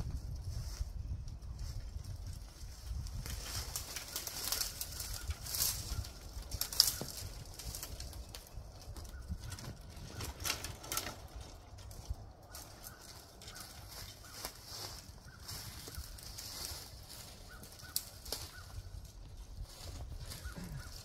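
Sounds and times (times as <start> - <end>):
branches rustling and knocking: 0.0 - 21.0
footsteps in dry leaves: 0.0 - 21.0
sharp wood crack: 3.2 - 14.6.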